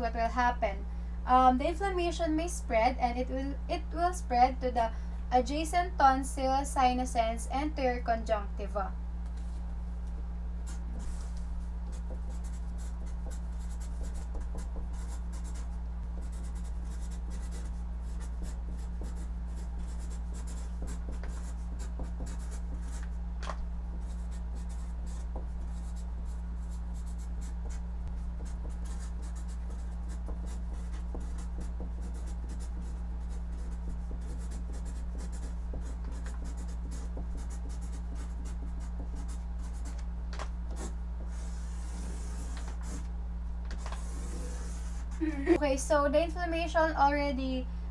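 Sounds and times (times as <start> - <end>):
steady low hum: 0.0 - 47.9
marker pen scratching on paper: 10.6 - 23.2, 24.0 - 40.0, 40.7 - 43.1, 43.7 - 45.6.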